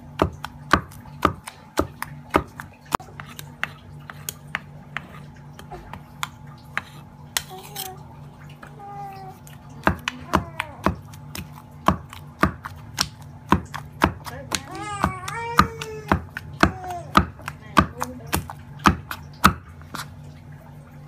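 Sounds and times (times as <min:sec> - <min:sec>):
pestle pounding in stone mortar: 0:00.0 - 0:05.0, 0:09.8 - 0:20.0.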